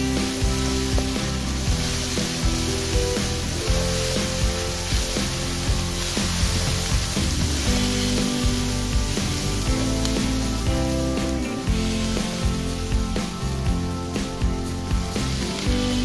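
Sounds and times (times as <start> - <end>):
background music with steady beat: 0.0 - 16.0
onions sizzling in hot oil: 0.0 - 16.0.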